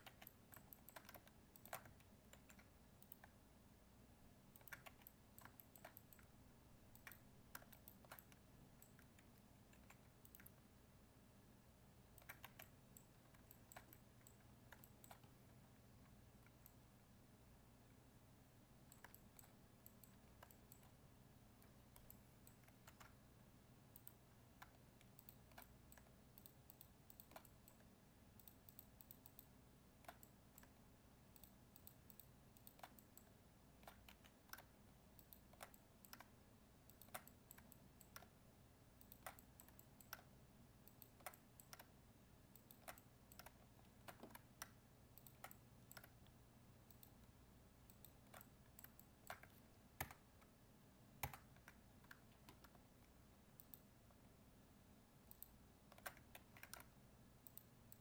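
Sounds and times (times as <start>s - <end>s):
computer keyboard and mouse clicks: 0.0s - 3.4s, 4.5s - 6.3s, 6.9s - 10.7s, 12.1s - 16.9s, 18.9s - 21.0s, 21.6s - 23.2s, 23.9s - 38.4s, 39.0s - 50.6s, 51.2s - 54.0s, 55.2s - 58.0s
low steady hum: 0.0s - 58.0s.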